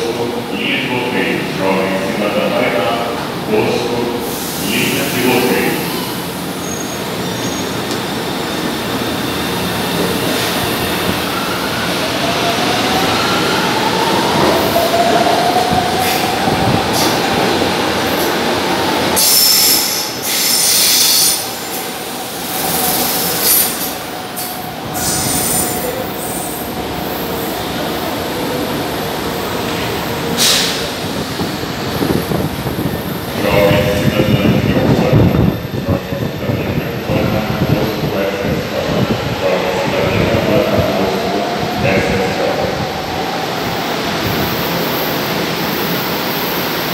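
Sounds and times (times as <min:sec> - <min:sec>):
train wheels screeching: 0:19.2 - 0:26.7.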